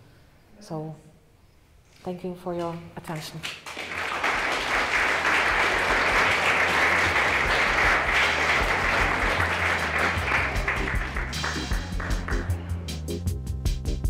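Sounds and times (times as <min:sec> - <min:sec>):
audience applauding: 0:03.5 - 0:12.7.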